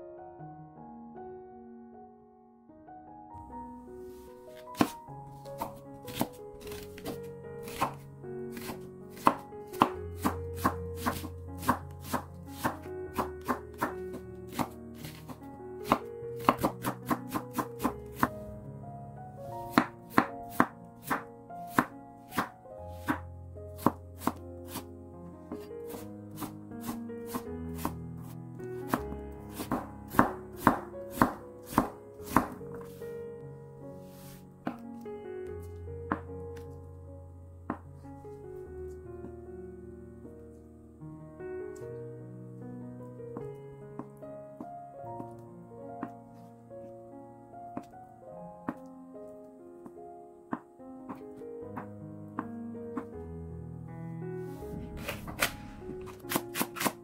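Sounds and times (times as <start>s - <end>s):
soft piano music: 0.0s - 57.0s
knife chopping on wooden board: 4.6s - 18.3s, 19.7s - 23.2s, 23.8s - 24.9s, 25.6s - 28.0s, 28.9s - 32.6s.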